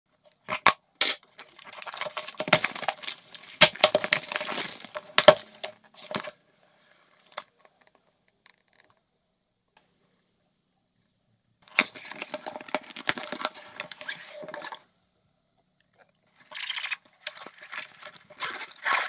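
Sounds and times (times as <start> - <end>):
cellophane crackling: 1.4 - 6.2, 16.5 - 19.0.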